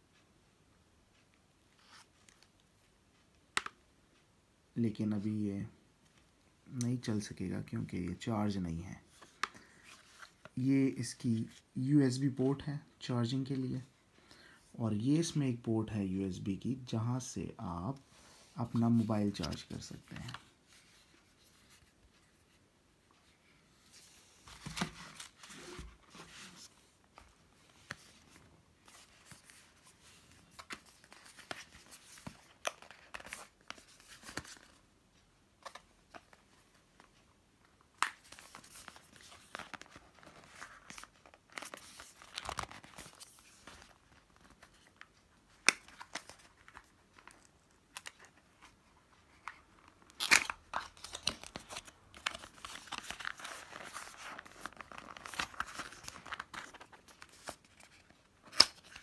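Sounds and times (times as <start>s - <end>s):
packaging rustling and crinkling: 38.0s - 59.0s.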